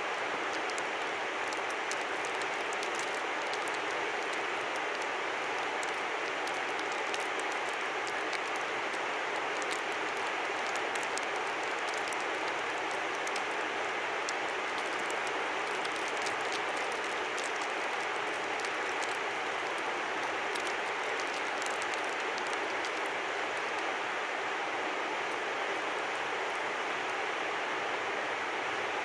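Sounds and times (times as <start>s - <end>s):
river flowing: 0.0s - 29.0s
light ticks: 0.5s - 8.7s, 9.4s - 13.6s.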